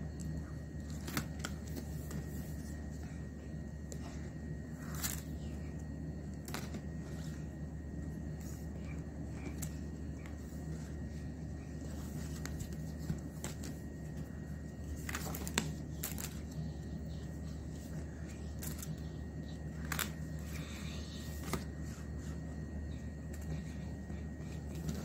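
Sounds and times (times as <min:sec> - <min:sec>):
low hum: 0:00.0 - 0:25.0
paper pages rustling: 0:04.8 - 0:05.4, 0:08.3 - 0:14.2, 0:14.8 - 0:22.4, 0:24.4 - 0:25.0.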